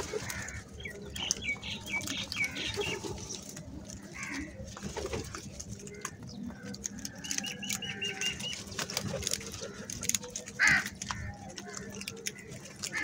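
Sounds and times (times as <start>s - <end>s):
beaks pecking concrete: 0.0s - 13.0s
loud crow call: 10.6s - 11.4s.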